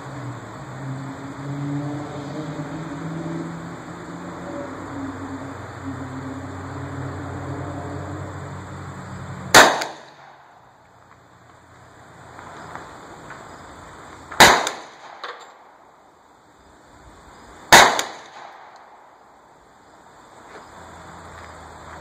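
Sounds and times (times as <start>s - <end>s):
gunshots with echo: 9.5s - 10.4s, 14.4s - 15.2s, 17.7s - 18.8s.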